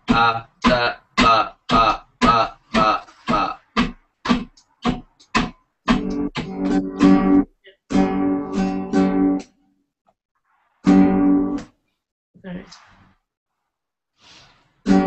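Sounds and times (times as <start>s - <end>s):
acoustic guitar strumming: 0.0s - 9.5s, 10.8s - 11.7s.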